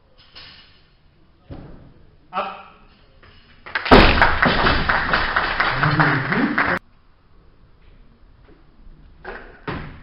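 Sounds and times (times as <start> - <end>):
people clapping: 3.6 - 6.8
barbell thuds: 3.9 - 4.9.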